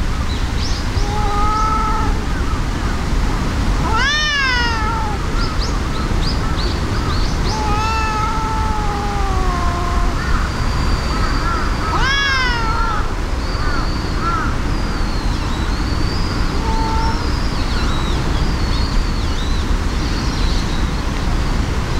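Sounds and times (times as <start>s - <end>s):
cats yowling: 1.0s - 2.7s, 3.7s - 5.9s, 7.3s - 14.5s, 16.5s - 17.4s.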